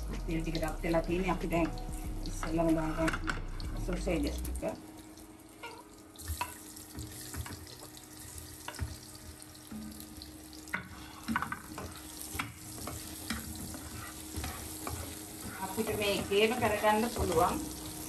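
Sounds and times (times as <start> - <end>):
sausages sizzling in oil: 0.0 - 18.0
spatula knocking and scraping pan: 10.7 - 17.6.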